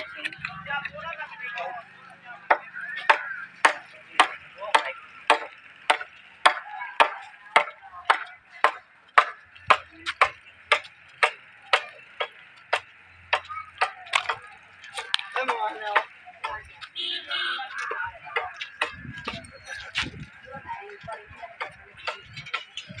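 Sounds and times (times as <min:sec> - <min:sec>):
footsteps walking: 0:14.1 - 0:23.0.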